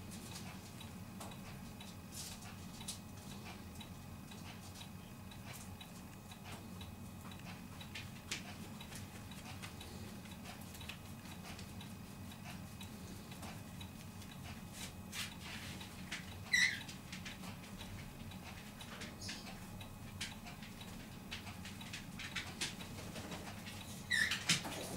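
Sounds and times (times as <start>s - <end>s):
animal squeaking: 16.5s - 16.9s, 24.1s - 24.4s.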